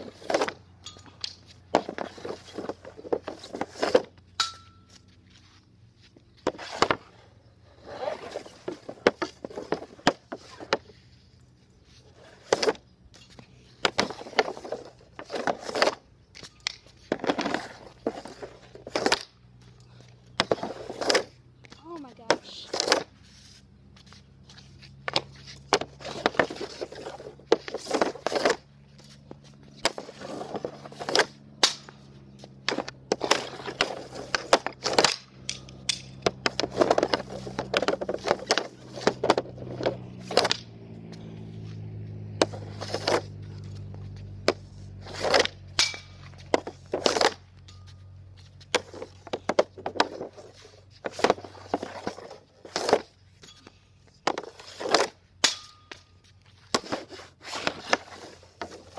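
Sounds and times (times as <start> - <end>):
pucks clacking into net: 0.0 - 5.2, 6.4 - 7.2, 8.0 - 11.0, 12.3 - 23.2, 24.0 - 41.3, 42.2 - 58.9
stick blade scraping pad: 0.0 - 19.7, 20.3 - 58.9
stick cracking against puck: 29.8 - 40.7, 42.4 - 47.4.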